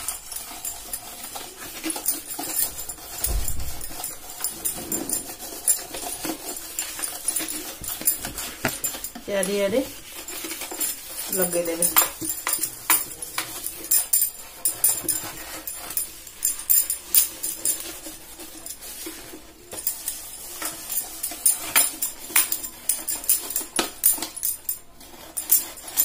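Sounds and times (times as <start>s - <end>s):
light jingling: 0.0s - 19.0s.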